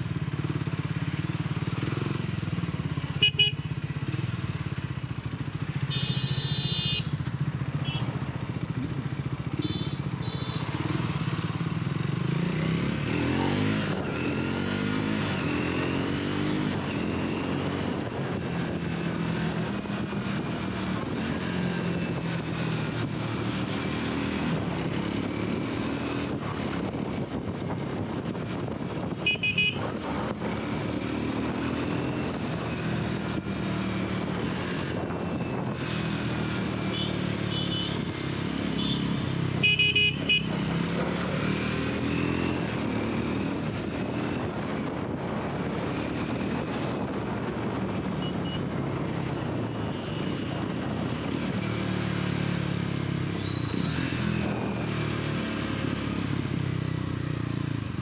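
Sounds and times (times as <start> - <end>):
motorcycle engine running: 0.0 - 58.0
vehicle horns honking: 3.2 - 3.7, 5.8 - 7.2, 7.8 - 8.2, 9.5 - 10.8, 29.2 - 29.9, 36.9 - 38.1, 38.7 - 40.6, 48.2 - 48.7.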